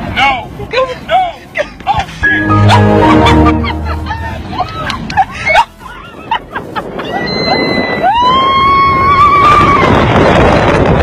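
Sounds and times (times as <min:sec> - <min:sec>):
wind rushing over microphone: 0:01.9 - 0:11.0.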